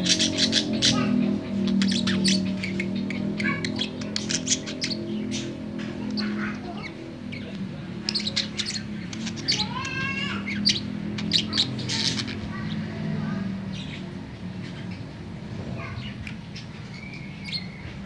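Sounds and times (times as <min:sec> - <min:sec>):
budgerigar chattering: 0:00.0 - 0:12.9.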